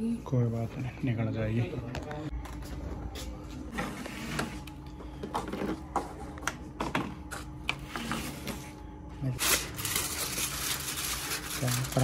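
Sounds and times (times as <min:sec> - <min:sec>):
aluminium foil crinkling: 0:09.4 - 0:12.0.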